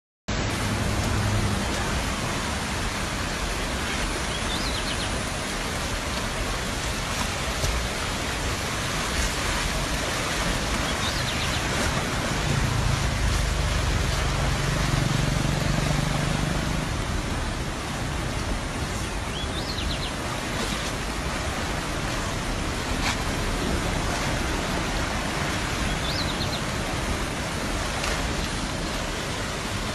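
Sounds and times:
floodwater rushing: 0.3s - 29.9s
low hum: 11.6s - 19.1s.

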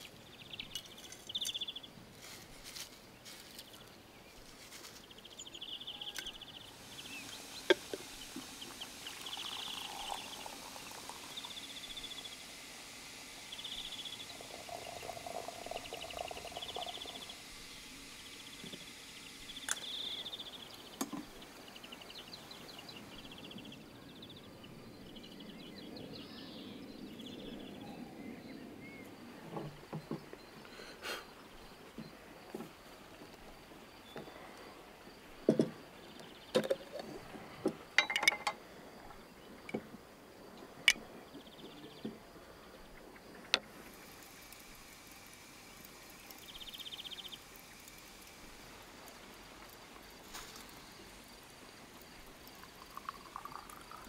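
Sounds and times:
small birds trilling: 0.0s - 2.0s, 3.2s - 39.7s, 40.8s - 54.0s
water running into a teapot: 5.2s - 23.7s, 37.9s - 38.6s, 43.4s - 54.0s
tableware clicking and knocking: 38.0s - 38.6s.

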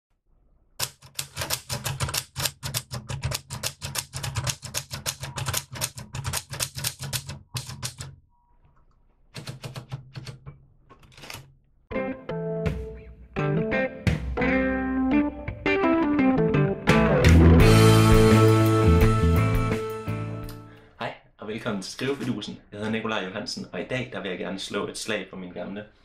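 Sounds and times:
typewriter key strikes: 0.8s - 8.2s, 9.4s - 10.4s
guitar music: 11.9s - 20.8s.

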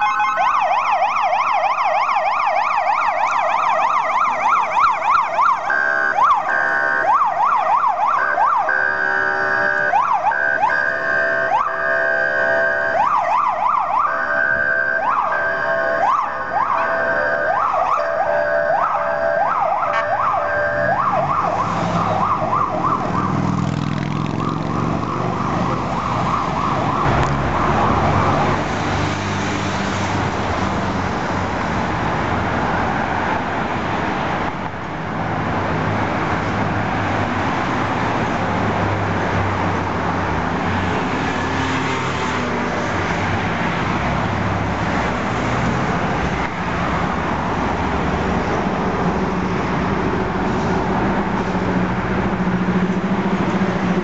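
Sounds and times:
fire engine siren sweeping: 0.0s - 34.5s
passing car engines: 19.5s - 54.0s.

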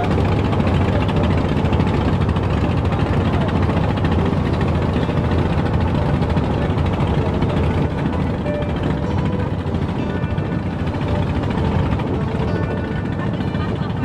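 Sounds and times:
boat engine running: 0.0s - 14.0s.

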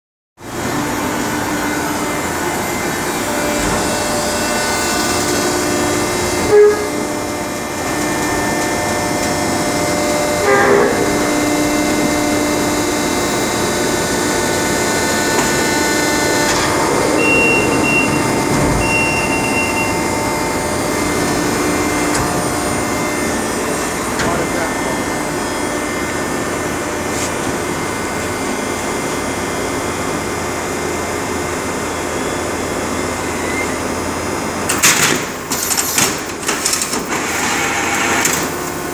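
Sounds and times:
baler machine drone: 0.4s - 38.9s
short high tones: 16.7s - 20.2s.

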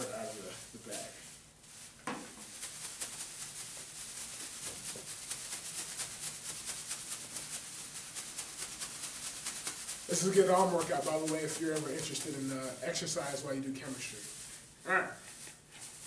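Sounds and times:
plastic bag crinkling: 0.0s - 16.0s
thump: 2.0s - 2.4s.

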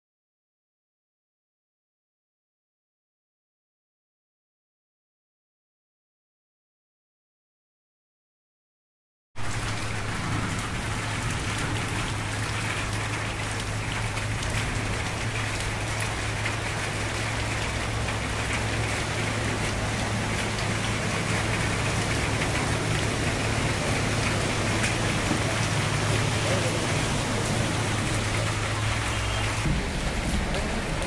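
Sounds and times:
heavy rain on standing water: 9.4s - 31.0s.

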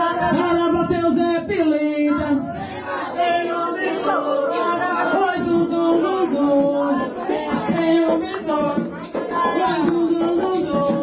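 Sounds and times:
group singing a sacred chant: 0.0s - 1.1s, 2.0s - 11.0s.

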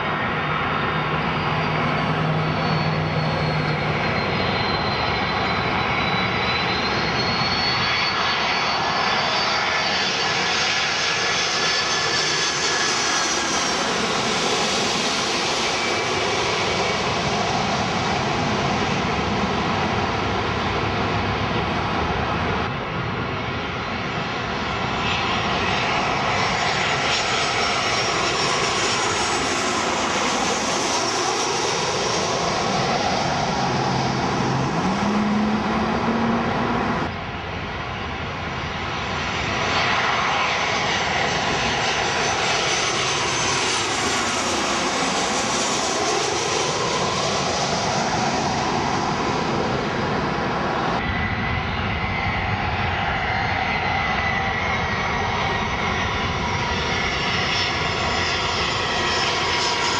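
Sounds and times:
jet airliners passing overhead: 0.0s - 59.9s.

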